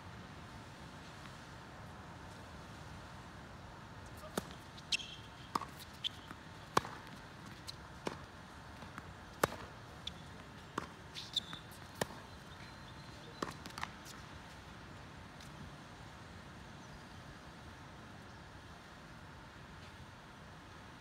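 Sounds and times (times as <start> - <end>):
tennis ball struck by rackets: 4.2 - 12.3
short high squeaks: 4.8 - 5.3, 11.1 - 11.7.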